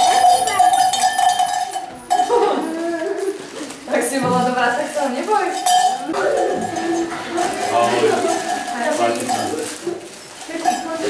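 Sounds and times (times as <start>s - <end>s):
hand bell ringing: 0.0s - 2.6s
children's voices: 0.0s - 4.4s, 6.0s - 9.9s.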